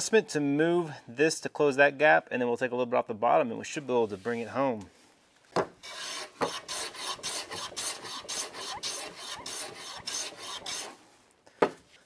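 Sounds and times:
hand plane shaving wood: 0:05.8 - 0:11.0.

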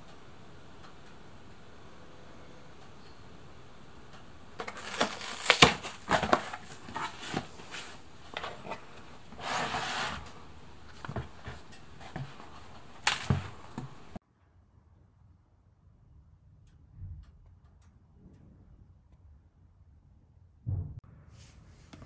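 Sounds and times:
cardboard flaps rustling and knocking: 0:04.6 - 0:14.2
plastic jug scraping cardboard: 0:04.6 - 0:14.2.

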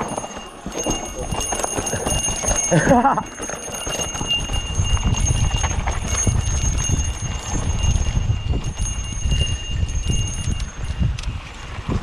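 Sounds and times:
high ringing: 0:00.0 - 0:11.3
bike frame and chain rattling: 0:00.0 - 0:12.0
wind rumble on microphone: 0:03.9 - 0:12.0.

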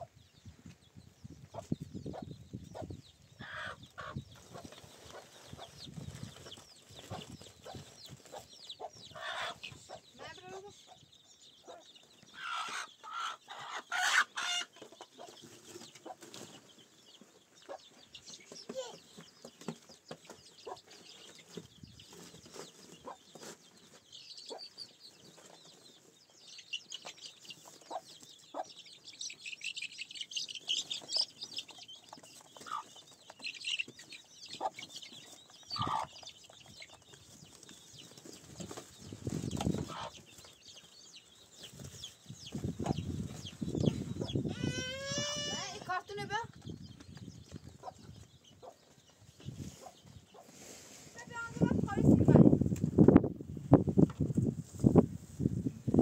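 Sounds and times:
chickens clucking: 0:00.0 - 0:53.2
short chicken calls: 0:03.4 - 0:04.2, 0:44.4 - 0:45.8.

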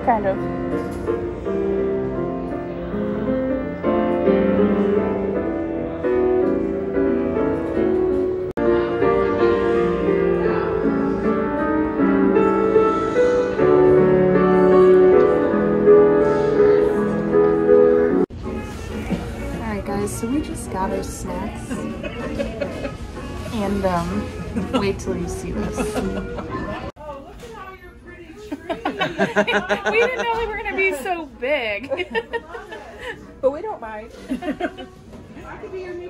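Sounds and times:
piano music: 0:00.0 - 0:27.0.

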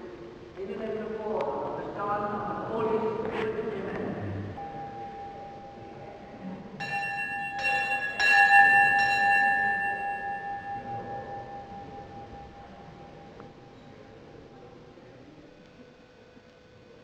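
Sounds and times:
bell ringing: 0:04.6 - 0:06.0, 0:06.8 - 0:13.4.

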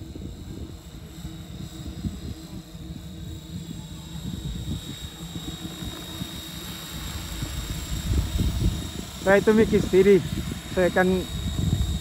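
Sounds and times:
helicopter high whine and rotor noise: 0:00.0 - 0:12.0
wind buffeting microphone: 0:00.0 - 0:12.0.

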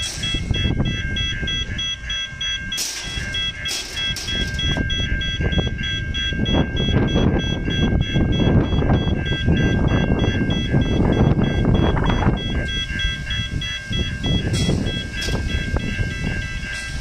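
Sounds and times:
level crossing bells ringing: 0:00.0 - 0:17.0
low rumble: 0:00.0 - 0:17.0.

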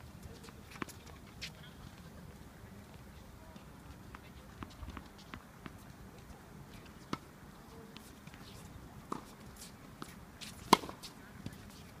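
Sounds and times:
tennis ball bouncing on hard court: 0:09.1 - 0:11.6
tennis ball hit by rackets: 0:10.0 - 0:11.6.

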